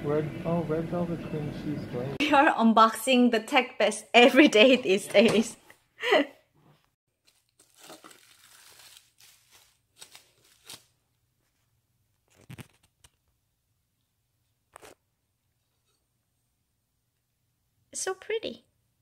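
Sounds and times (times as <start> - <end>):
cardboard tearing and rustling: 7.2 - 11.0.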